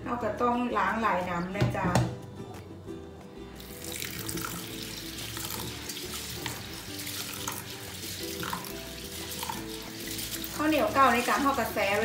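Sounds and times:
tap water running into steel bowl: 3.6 - 12.0.

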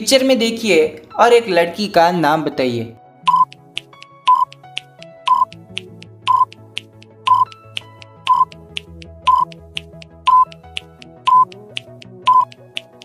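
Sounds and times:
soft background music: 0.0 - 13.0
short electronic beeps: 3.3 - 3.5, 5.3 - 5.5, 6.3 - 6.5, 7.3 - 7.5, 8.3 - 8.5, 9.3 - 9.5, 10.3 - 10.5, 11.3 - 11.5, 12.3 - 12.5.

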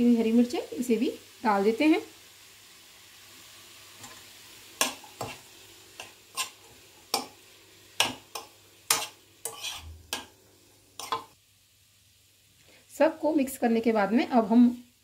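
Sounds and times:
faint sizzle: 0.0 - 15.0
steel spoon scraping a pan: 4.0 - 7.4, 8.0 - 10.3, 11.0 - 11.4.

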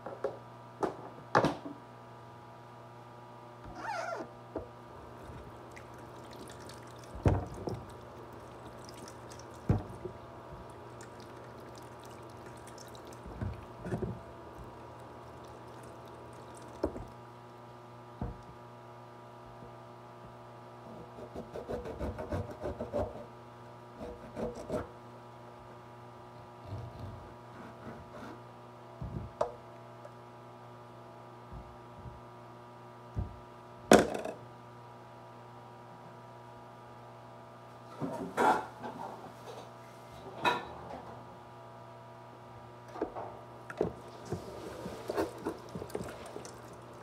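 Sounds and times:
water running from tap: 5.7 - 10.0, 10.6 - 13.9, 14.5 - 17.2, 45.4 - 47.0.

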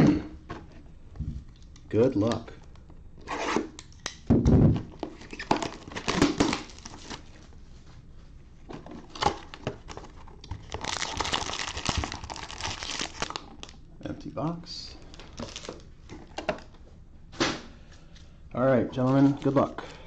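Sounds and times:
wrapped packs rustling: 5.0 - 7.5, 9.0 - 13.8, 15.0 - 16.4
plastic wrap tearing and crumpling: 5.1 - 7.3, 9.1 - 13.8, 15.1 - 15.9.

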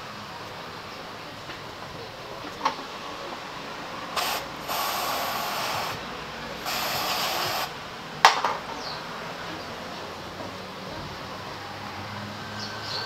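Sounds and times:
air blow gun hissing: 4.1 - 7.8.

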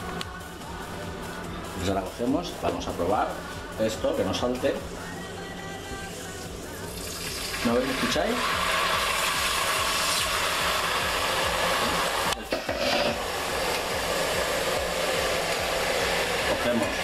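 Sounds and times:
liquid sizzling in hot oil: 6.8 - 17.0.

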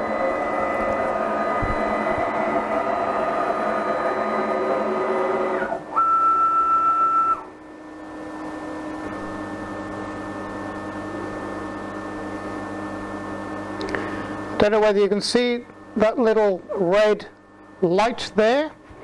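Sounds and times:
stepper motors whining: 0.0 - 7.7.

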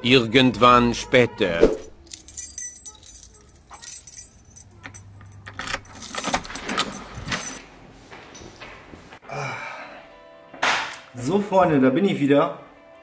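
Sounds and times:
keys jangling: 1.9 - 7.6.

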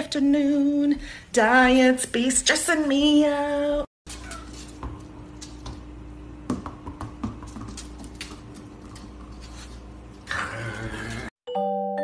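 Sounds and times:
puppy scuffle: 4.1 - 4.8.

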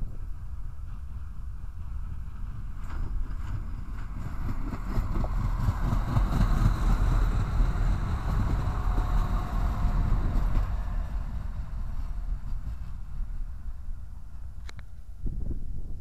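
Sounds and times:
diesel train passing: 0.0 - 15.3.

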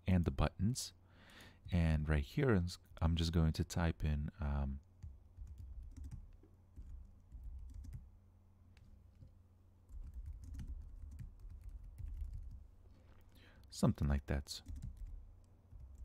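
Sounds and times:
typing on computer keyboard: 5.0 - 8.1, 9.9 - 12.6, 14.6 - 16.0.

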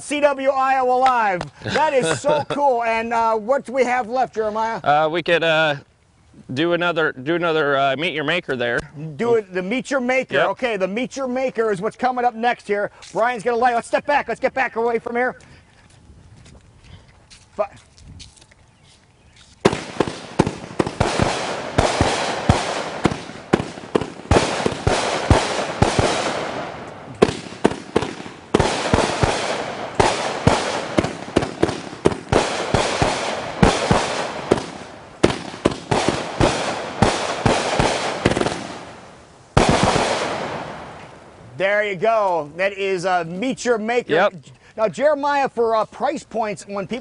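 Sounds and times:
firework launch pops and bursts: 19.6 - 41.3
firework crackling hiss: 19.6 - 41.4.

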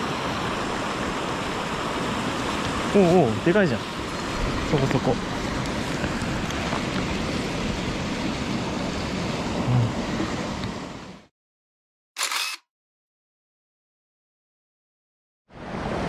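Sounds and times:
stream splashing over rocks: 0.0 - 8.3.

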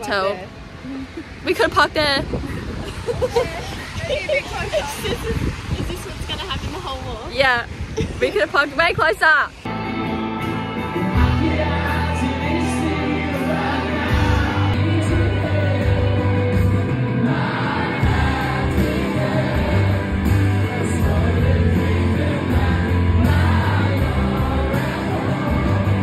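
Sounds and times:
loud music with singing: 9.6 - 26.0
strong bass line: 9.7 - 26.0.

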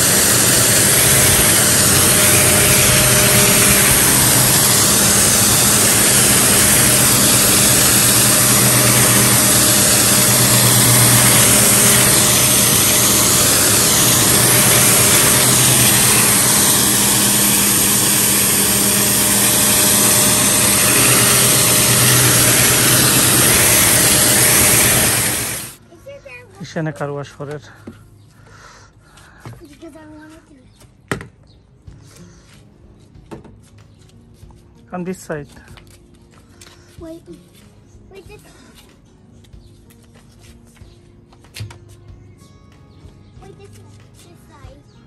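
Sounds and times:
pressure washer motor humming: 0.0 - 25.8
water jet spraying car: 0.0 - 25.8.

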